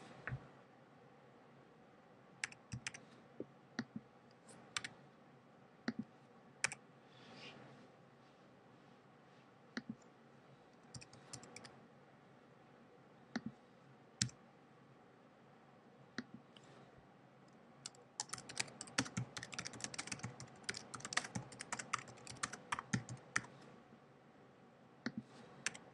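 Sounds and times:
fast typing on a keyboard: 2.4 - 3.0, 10.9 - 11.7, 17.8 - 23.5, 25.6 - 25.8.

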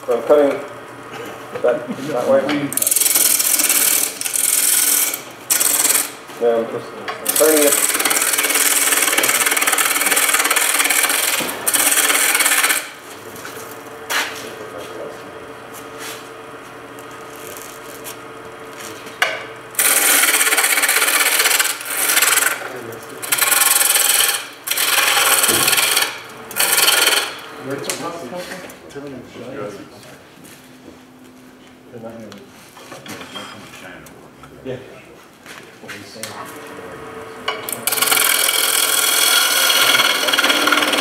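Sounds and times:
lathe motor hum: 0.1 - 28.4, 36.4 - 41.0
chisel cutting on a wood lathe: 2.4 - 6.2, 7.2 - 13.0, 19.2 - 27.6, 37.4 - 41.0.

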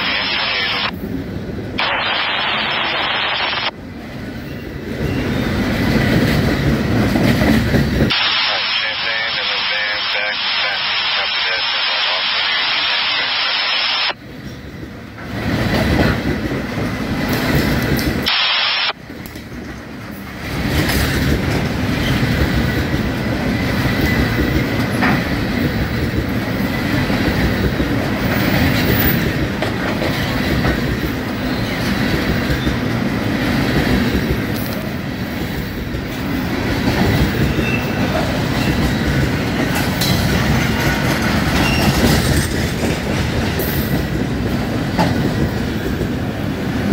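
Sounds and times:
radio static hiss: 0.0 - 0.9, 1.8 - 3.8, 8.1 - 14.2, 18.2 - 19.0
freight train rolling past: 0.0 - 8.1, 14.1 - 18.3, 18.9 - 46.9
wheels clacking on track: 4.0 - 8.1, 14.3 - 18.3, 19.0 - 46.9.

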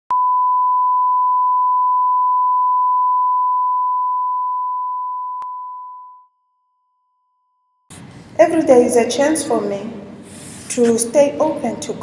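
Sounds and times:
sine-wave test tone beep: 0.1 - 7.9.

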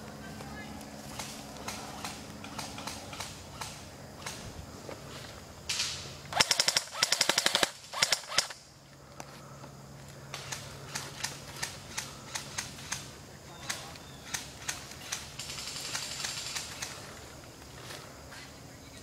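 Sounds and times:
airsoft rifle full-auto burst: 6.3 - 8.6, 13.7 - 17.0.

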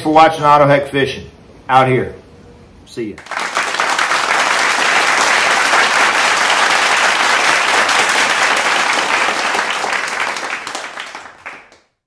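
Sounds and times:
many hands clapping: 3.2 - 12.0.

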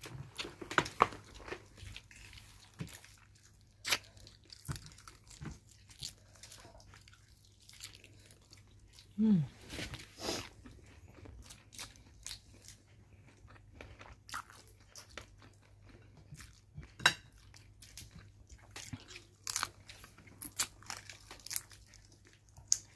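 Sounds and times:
chewing and crunching: 0.0 - 22.9.

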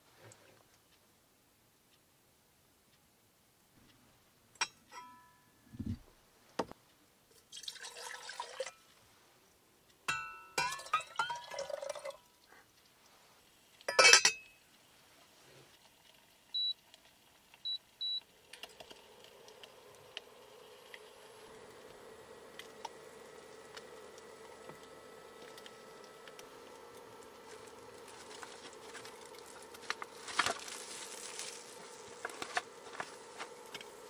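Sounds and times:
water pouring into kettle: 7.4 - 8.8, 10.6 - 12.2, 18.3 - 34.0
kettle lid clinking: 10.1 - 11.7, 13.9 - 14.4
lid clattering: 10.1 - 11.7, 13.9 - 14.4
low steady hum: 17.6 - 34.0.

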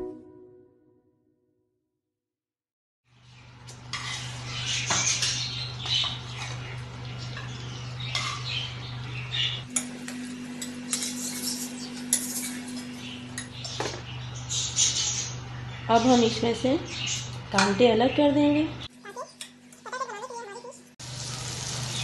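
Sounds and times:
metal tongs clinking on pan: 9.8 - 13.5.

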